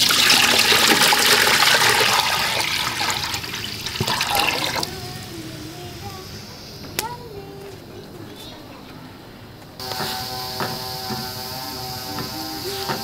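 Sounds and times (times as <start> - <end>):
water pouring into metal pot: 0.0 - 5.0.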